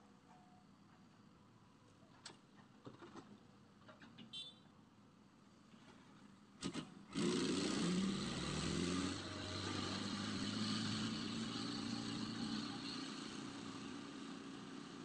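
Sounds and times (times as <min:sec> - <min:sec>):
heavy diesel engine under load: 0:06.6 - 0:15.0.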